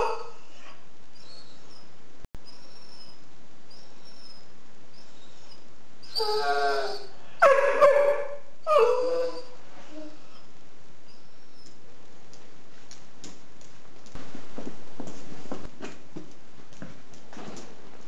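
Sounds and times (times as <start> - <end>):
dog whining howls: 5.1 - 10.2.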